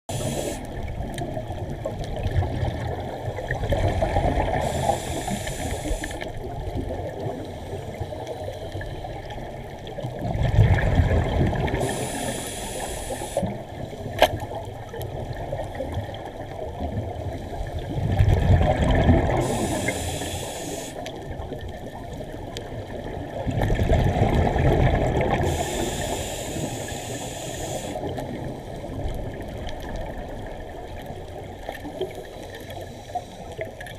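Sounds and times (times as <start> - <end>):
regulator hiss: 0.1 - 0.8, 4.6 - 6.3, 11.8 - 13.5, 19.4 - 21.1, 25.4 - 28.0
exhaled bubbles rumbling underwater: 0.1 - 33.9.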